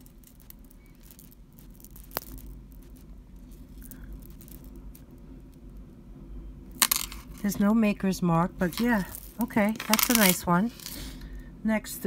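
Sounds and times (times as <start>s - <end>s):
metal necklace rustling and clicking: 0.0s - 5.6s, 6.8s - 7.5s, 8.6s - 11.2s.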